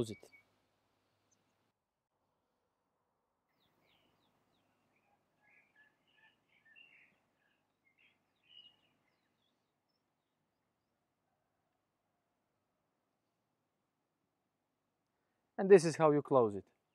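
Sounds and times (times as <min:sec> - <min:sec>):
faint birdsong chirps: 0:00.0 - 0:01.8, 0:03.4 - 0:13.7.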